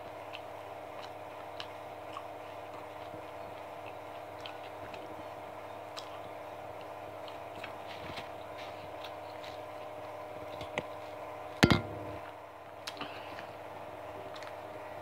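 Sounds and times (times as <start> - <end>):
chewing crispy fried chicken: 0.0 - 11.6, 12.2 - 15.0
sharp knock: 11.6 - 12.2
steady hum: 11.6 - 12.3.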